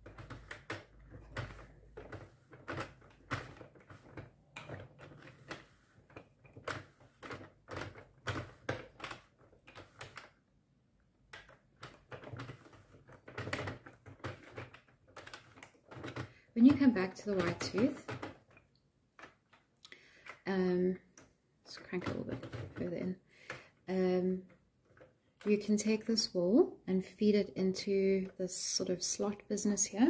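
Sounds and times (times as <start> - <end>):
plastic knitting machine clicks: 0.0 - 10.4, 11.2 - 26.3.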